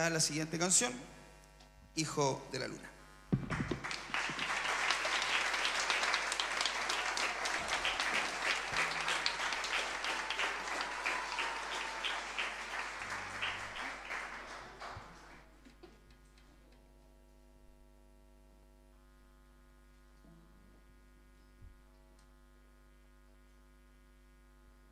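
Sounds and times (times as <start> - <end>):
audience applauding: 3.4 - 15.8.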